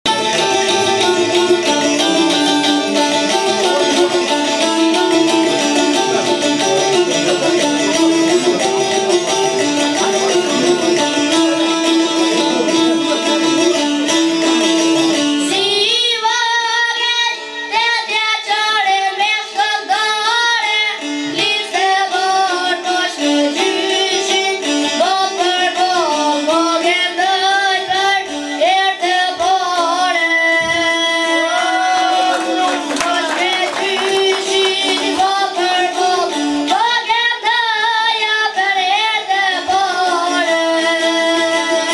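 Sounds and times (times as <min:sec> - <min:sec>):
plucked lutes playing: 0:00.0 - 0:41.9
high voice singing: 0:29.2 - 0:41.9.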